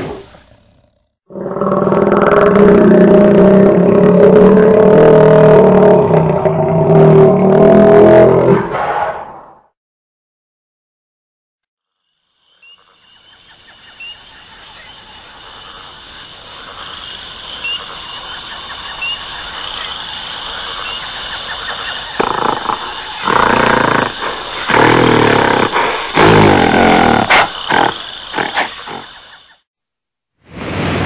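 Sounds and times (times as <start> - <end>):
gorilla growls and roars: 0.0 - 9.3, 22.2 - 29.4.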